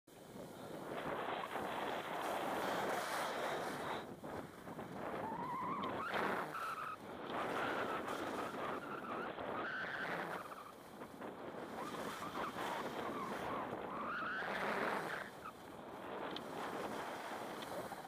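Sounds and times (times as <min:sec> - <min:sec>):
wind on microphone: 0:00.2 - 0:18.0
skis scraping on snow: 0:00.3 - 0:18.0
high whining ski tones: 0:00.9 - 0:18.0.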